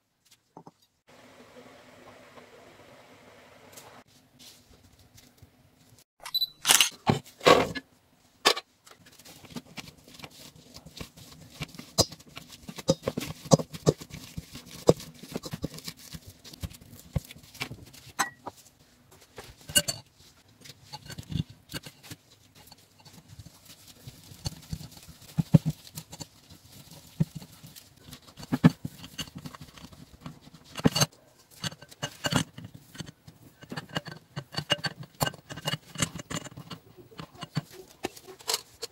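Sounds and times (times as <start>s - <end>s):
clicks and knocks of metal and glass: 19.6s - 20.1s, 28.1s - 38.9s.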